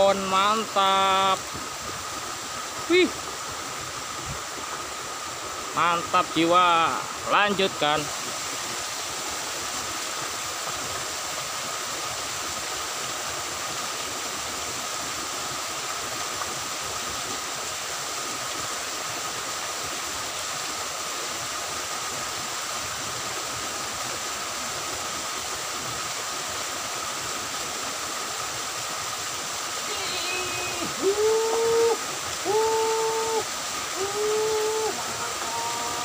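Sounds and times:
water rushing in ditch: 0.0 - 36.0
faint high tone: 29.8 - 31.9.

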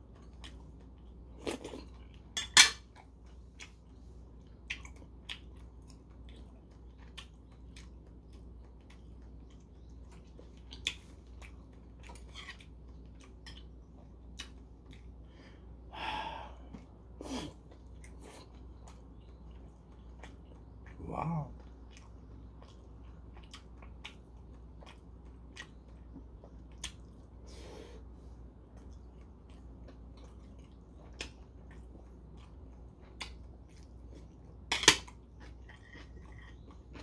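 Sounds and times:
person chewing: 0.0 - 37.0.

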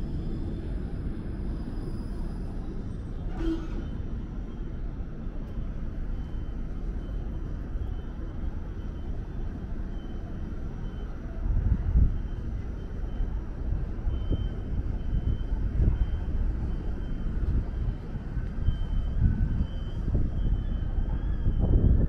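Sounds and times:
street traffic noise: 0.0 - 22.0
streetcar rumbling on tracks: 0.0 - 22.0.

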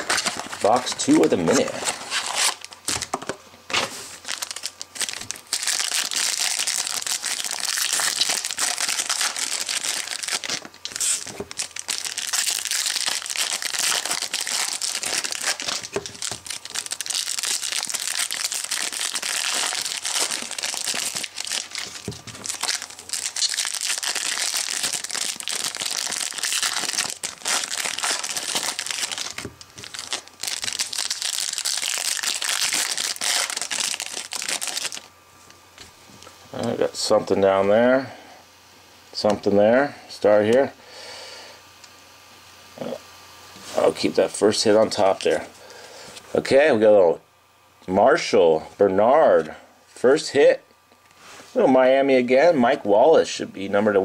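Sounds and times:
foil wrappers crinkling and tearing: 0.0 - 35.1.

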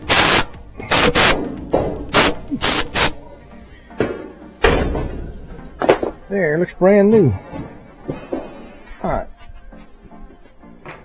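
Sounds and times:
compressed air blasts: 0.0 - 1.5, 2.1 - 3.2.

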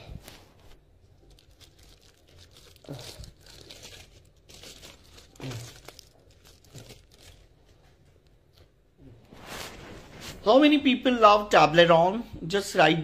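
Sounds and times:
packaging crinkling: 0.2 - 8.0.

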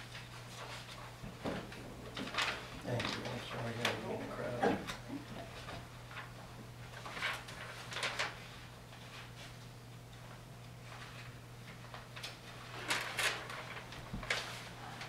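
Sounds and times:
papers rustling: 0.0 - 5.0, 5.6 - 9.6, 10.8 - 15.0
steady low hum: 0.0 - 15.0.

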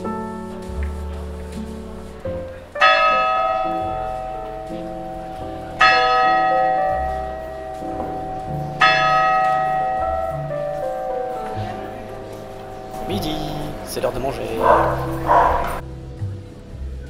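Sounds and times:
clock-tower bell striking: 2.7 - 15.8.

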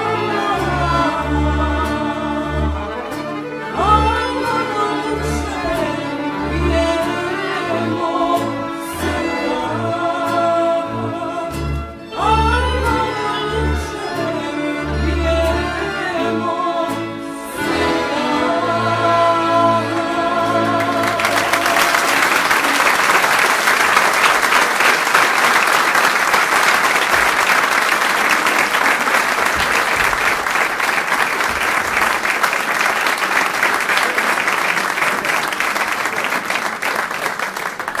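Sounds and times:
audience applauding: 19.9 - 38.0.

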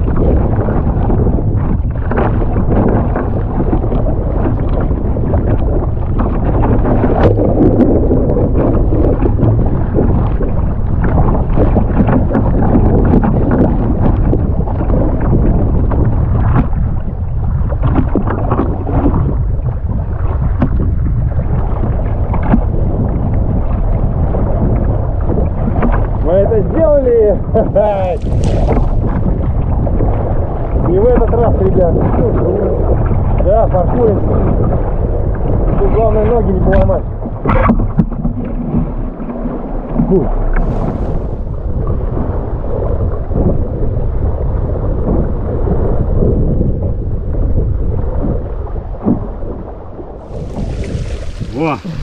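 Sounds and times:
paddle splashing: 0.0 - 15.3, 27.7 - 30.9, 37.4 - 41.8, 50.2 - 52.0
waves slapping hull: 0.0 - 52.0
wind buffeting microphone: 0.0 - 52.0.

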